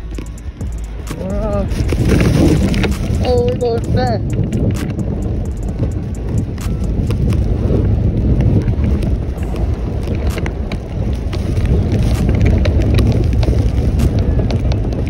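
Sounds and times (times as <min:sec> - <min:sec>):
sharp ticks: 0:00.0 - 0:15.0
snow tube sliding over snow: 0:00.0 - 0:15.0
wind rushing over microphone: 0:00.0 - 0:15.0.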